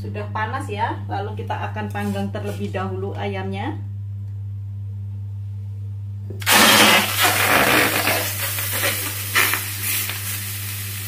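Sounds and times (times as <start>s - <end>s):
steady low hum: 0.0s - 11.0s
chicken sizzling in hot oil: 8.0s - 11.0s.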